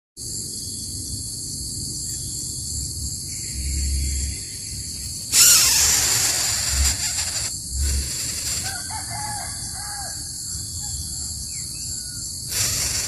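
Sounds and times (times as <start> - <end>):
insects droning: 0.2 - 13.0
low rumble: 2.4 - 8.7
loud noisy sound: 5.3 - 8.7.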